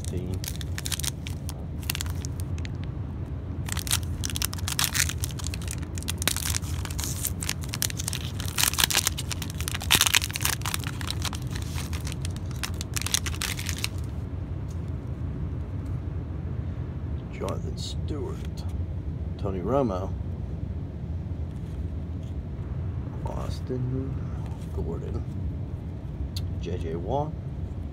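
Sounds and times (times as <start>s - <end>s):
card pack wrapper crinkling and tearing: 0.0s - 2.9s, 3.7s - 14.1s.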